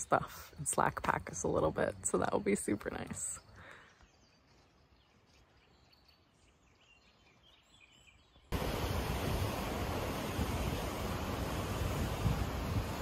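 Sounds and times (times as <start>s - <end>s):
faint bird chirps: 3.0s - 8.5s
wind on microphone: 8.5s - 13.0s.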